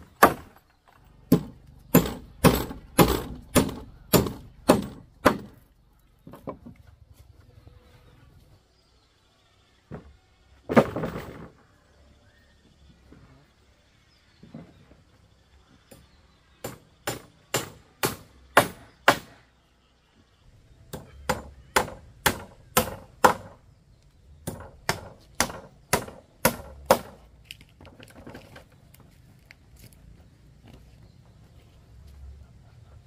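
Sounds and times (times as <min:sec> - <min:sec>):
hand tool striking wood: 0:01.3 - 0:05.6, 0:15.9 - 0:19.4, 0:24.4 - 0:27.2.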